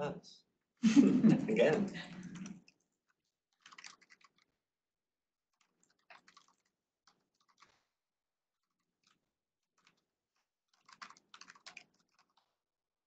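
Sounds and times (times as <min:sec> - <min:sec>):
faint laptop keyboard typing: 0:01.9 - 0:04.6, 0:05.6 - 0:08.0, 0:08.6 - 0:12.7.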